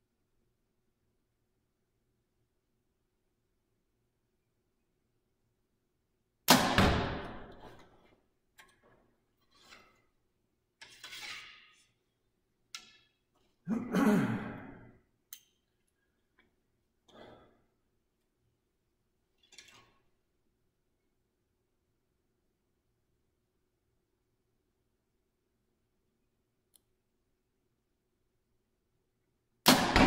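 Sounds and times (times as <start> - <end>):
bow shot crack: 6.5 - 7.7.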